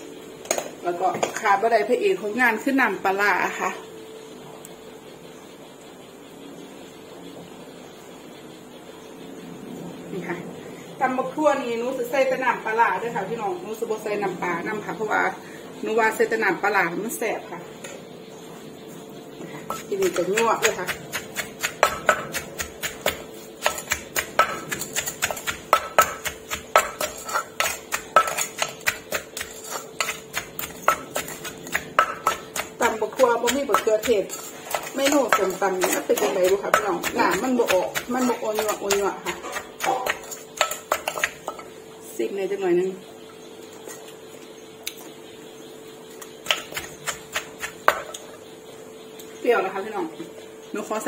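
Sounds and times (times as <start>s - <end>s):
pestle pounding in mortar: 19.7s - 41.6s, 46.4s - 48.2s.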